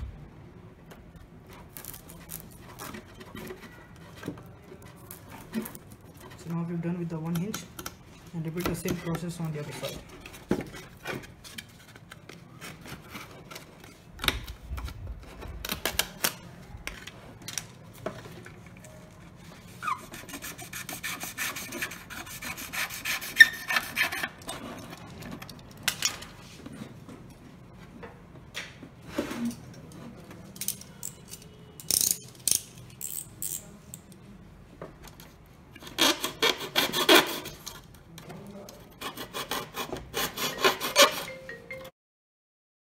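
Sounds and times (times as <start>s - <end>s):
knife rasping through foam board: 19.7s - 24.4s, 35.8s - 37.7s, 38.9s - 41.2s.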